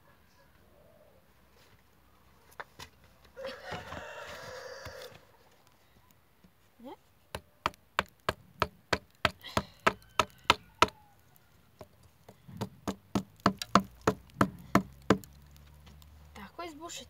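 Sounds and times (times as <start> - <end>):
knocks on wooden shaft: 11.8 - 15.3.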